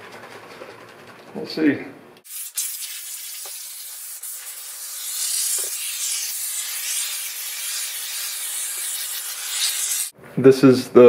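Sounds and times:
aerosol spray can hissing: 2.2 - 10.1.

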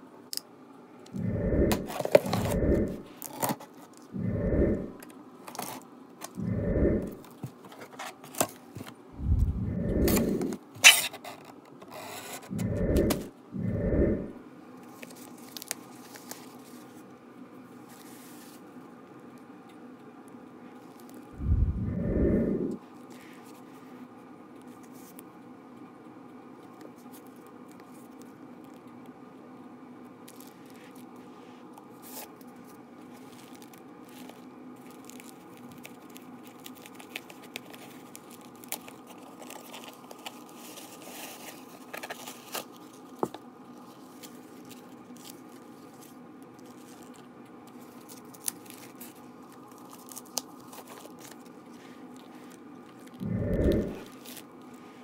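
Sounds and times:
faint hum: 0.0 - 7.8, 8.4 - 11.1, 12.0 - 18.0, 18.6 - 55.0
packaging rustling and crinkling: 14.9 - 17.0, 32.0 - 53.2, 54.0 - 54.7.

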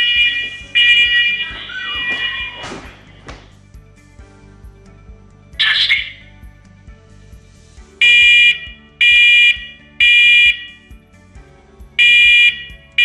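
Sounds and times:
smoke alarm shrill beeps: 0.0 - 1.6, 8.0 - 10.8, 12.0 - 12.8.

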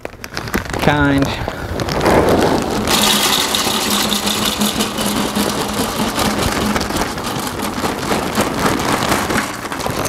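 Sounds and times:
pellets pouring into metal hopper: 1.8 - 10.0
grill motor hum: 2.6 - 10.0.

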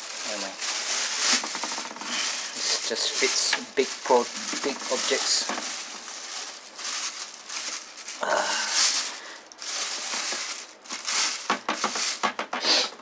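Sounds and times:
plastic bag rustling: 0.0 - 12.6.

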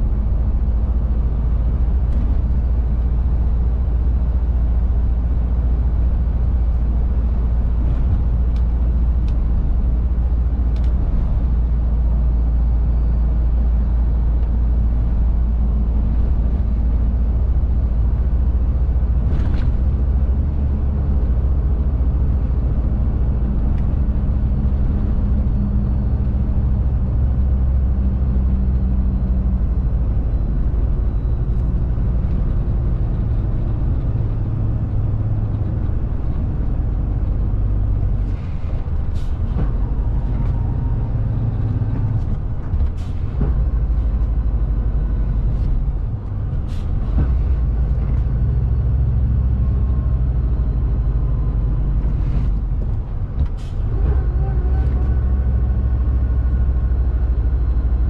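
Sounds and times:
road and wind noise: 0.0 - 58.0
truck engine drone: 0.0 - 58.0.

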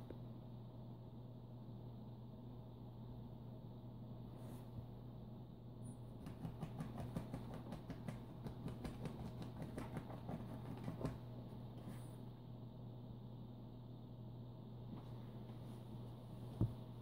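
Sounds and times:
faint low hum: 0.0 - 17.0
fingers scratching mattress cover: 6.2 - 11.2.

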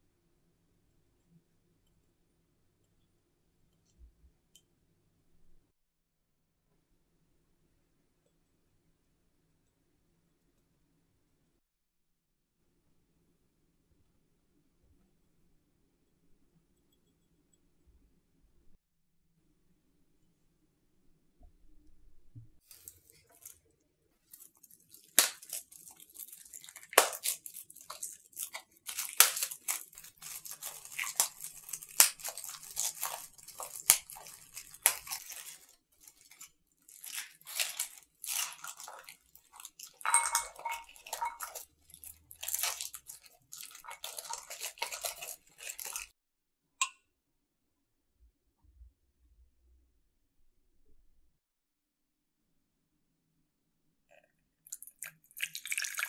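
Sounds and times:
utensils scraping and clicking on dishes: 38.5 - 46.1.

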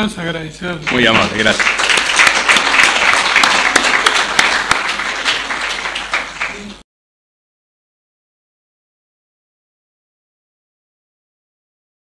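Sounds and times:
audience applauding: 0.8 - 6.8.

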